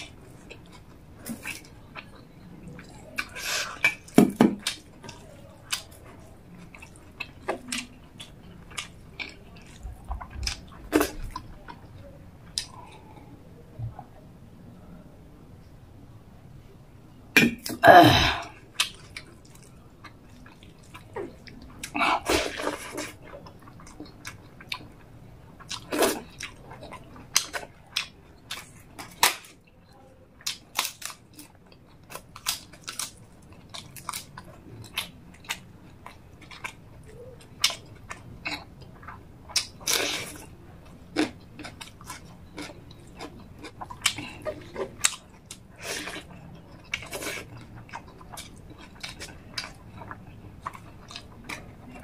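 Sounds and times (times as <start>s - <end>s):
smacking chews: 0.0s - 13.2s, 18.4s - 29.8s, 30.4s - 52.0s
crisp food crunching: 30.4s - 52.0s.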